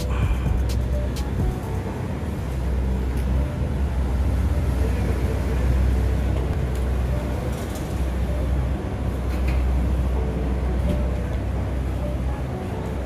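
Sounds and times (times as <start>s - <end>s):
low rumble of traffic: 0.0s - 13.0s.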